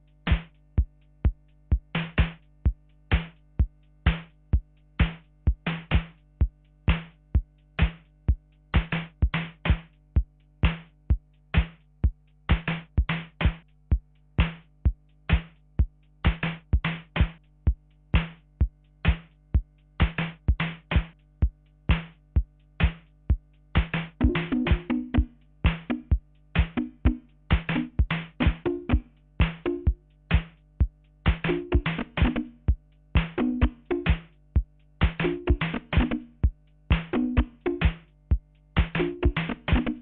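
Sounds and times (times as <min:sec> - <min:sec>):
drum machine beat: 0:00.0 - 0:40.0
steady low hum: 0:00.0 - 0:40.0.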